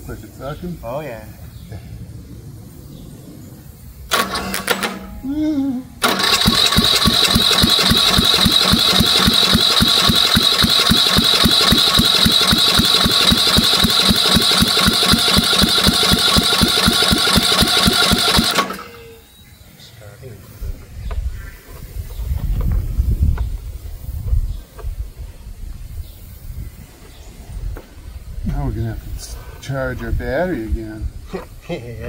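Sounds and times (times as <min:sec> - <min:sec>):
electric starter whine: 0:04.1 - 0:05.3, 0:06.0 - 0:19.5
engine cranking without starting: 0:04.1 - 0:05.3, 0:06.0 - 0:19.2.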